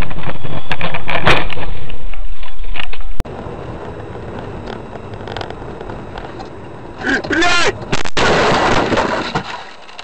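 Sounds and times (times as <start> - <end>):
road noise: 0.0 - 10.0
car driving hum: 1.7 - 9.9.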